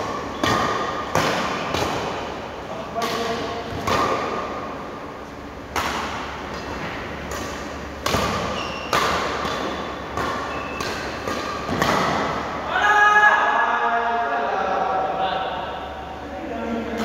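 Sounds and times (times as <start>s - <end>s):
racket smacking shuttlecock: 0.0s - 2.4s, 3.0s - 4.6s, 5.6s - 12.6s
shoe squeaks on wooden floor: 8.5s - 8.9s, 10.5s - 10.8s.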